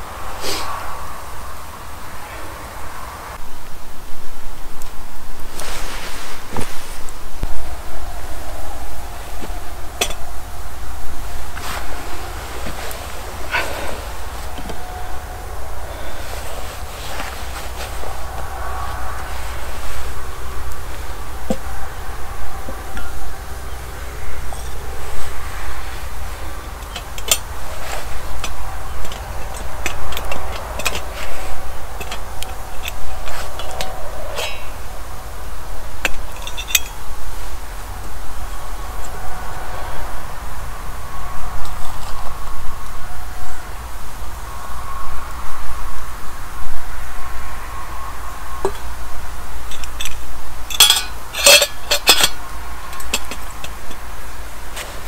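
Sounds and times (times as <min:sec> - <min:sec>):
low steady rumble: 0:00.0 - 0:55.0
metal spoon clinking in mug: 0:50.7 - 0:52.4.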